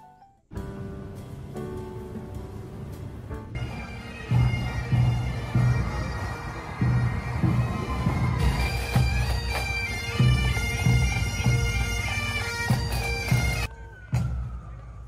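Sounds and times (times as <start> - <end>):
bagpipes playing a tune: 3.6 - 13.7.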